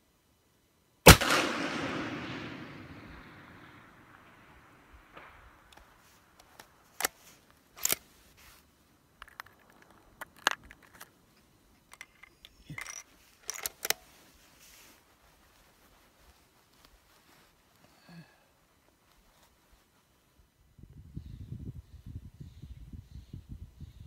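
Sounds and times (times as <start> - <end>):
rifle shot echo: 1.1 - 6.0
rifle bolt clicks and clacks: 7.8 - 8.0, 9.2 - 11.1, 11.8 - 14.1.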